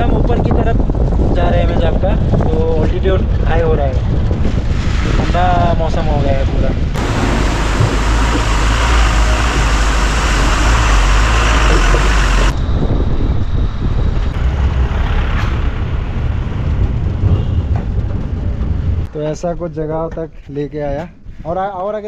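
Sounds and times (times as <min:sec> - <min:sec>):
wind rushing: 0:00.0 - 0:19.1
engine and tyre rumble: 0:02.1 - 0:05.4, 0:06.0 - 0:19.1.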